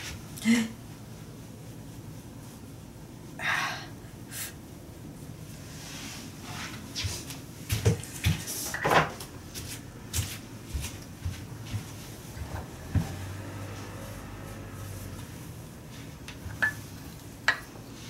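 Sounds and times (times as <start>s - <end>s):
footsteps: 6.6s - 15.3s.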